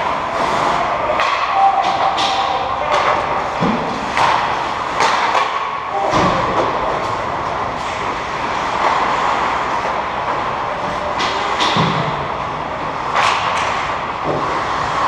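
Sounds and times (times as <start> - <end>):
skates scraping on ice: 6.6 - 11.7, 13.0 - 15.0.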